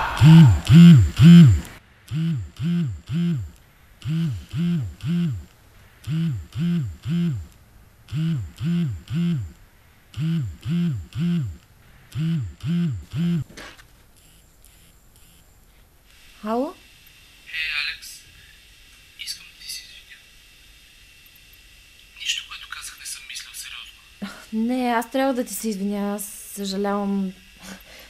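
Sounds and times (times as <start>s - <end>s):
phone vibrating on wooden shelf: 0.2s - 7.5s, 8.1s - 13.5s.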